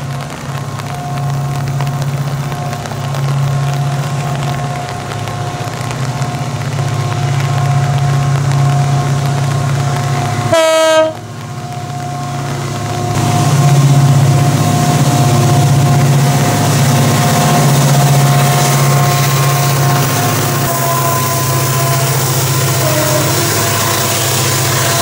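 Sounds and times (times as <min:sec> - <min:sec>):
diesel locomotive engines droning: 0:00.0 - 0:25.0
locomotive horn blast: 0:10.2 - 0:11.3, 0:16.7 - 0:25.0.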